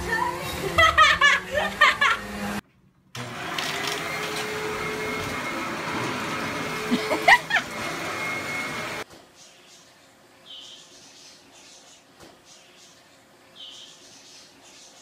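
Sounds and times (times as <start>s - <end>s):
vacuum cleaner running: 0.0s - 2.6s, 3.2s - 9.0s.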